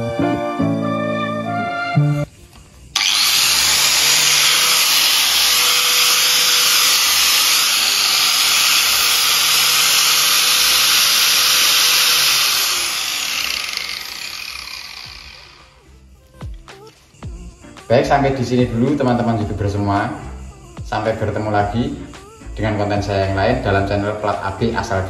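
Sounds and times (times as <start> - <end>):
angle grinder motor running: 2.9 - 16.0.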